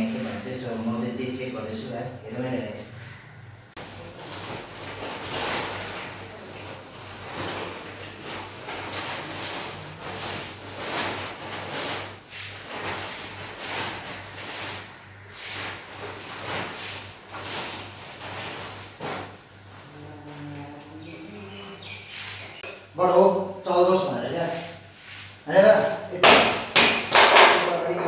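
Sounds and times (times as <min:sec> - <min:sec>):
low steady hum: 0:00.0 - 0:27.1
plastic bag rustling: 0:03.8 - 0:22.7.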